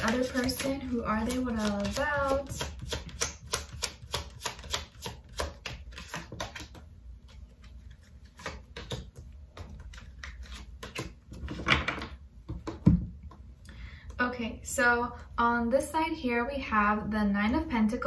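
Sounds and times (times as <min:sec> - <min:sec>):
cards being shuffled: 0:00.0 - 0:12.0.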